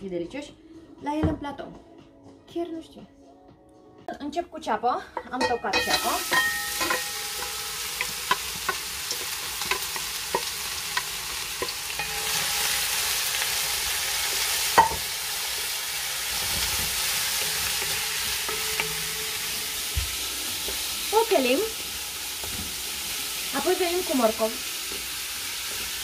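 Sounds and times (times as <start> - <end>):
spatula tapping and scraping metal: 5.2 - 12.4, 16.6 - 20.9
onion sizzling in hot oil: 5.5 - 26.0.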